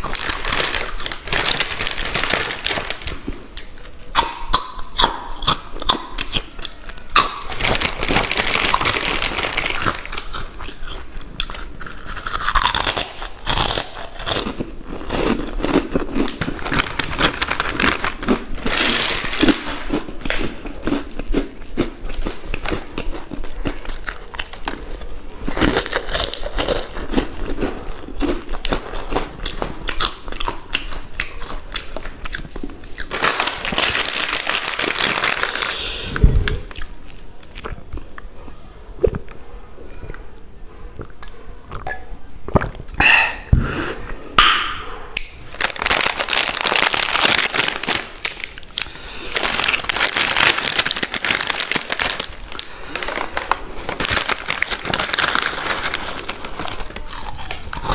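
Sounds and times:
crunching and chewing snacks: 0.0s - 39.5s, 45.2s - 57.9s.

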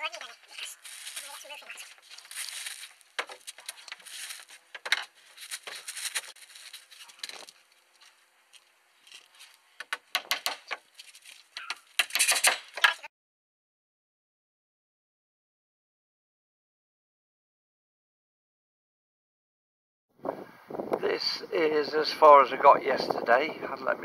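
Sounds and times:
roofing felt rustling and scraping: 0.0s - 9.8s, 10.6s - 12.9s.

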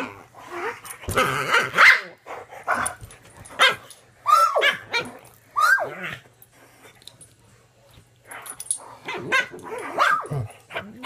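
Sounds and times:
dogs barking and yelping: 0.0s - 6.3s, 8.4s - 11.0s
dog whining: 4.2s - 6.2s.

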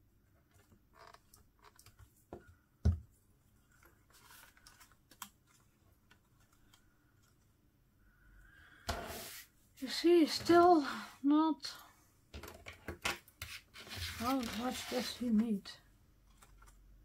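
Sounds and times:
paper rustling: 3.6s - 7.4s, 13.5s - 15.5s.

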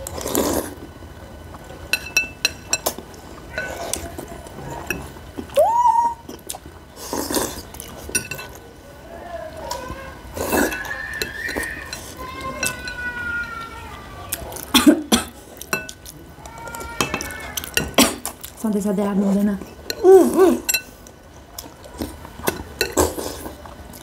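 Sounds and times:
slurping: 0.0s - 0.9s, 6.2s - 8.6s, 9.7s - 12.9s, 20.2s - 24.0s
cutlery clinking against bowls: 1.9s - 4.0s, 7.8s - 8.6s, 10.5s - 13.1s, 14.5s - 16.1s, 16.9s - 18.5s, 20.6s - 21.0s, 22.0s - 24.0s.

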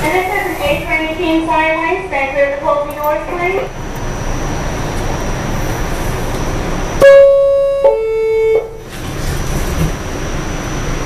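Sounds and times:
train car hum: 0.0s - 11.0s
two-tone door chime: 7.0s - 8.8s.

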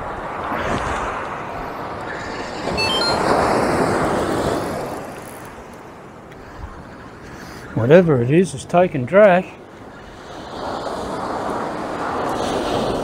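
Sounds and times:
brief high chirps: 2.8s - 3.4s
surf washing on beach: 6.8s - 13.0s.

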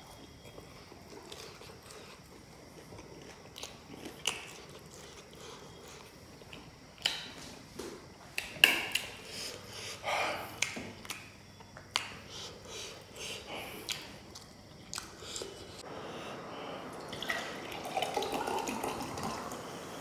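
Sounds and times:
person sniffing: 9.2s - 10.6s, 12.2s - 13.9s.

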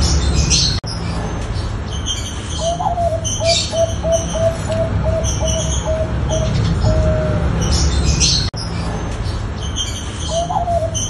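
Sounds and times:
small birds chirping: 0.0s - 11.0s
dove cooing: 2.6s - 8.4s, 10.3s - 11.0s.

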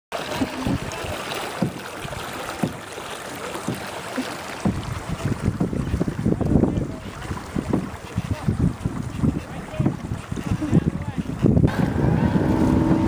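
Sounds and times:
wind buffeting microphone: 4.5s - 13.0s.

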